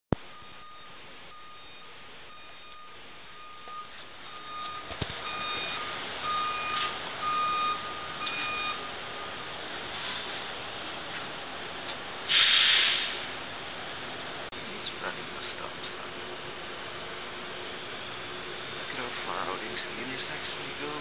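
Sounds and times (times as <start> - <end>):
truck warning beeper: 0.1 - 9.4
rushing noise: 12.1 - 17.0.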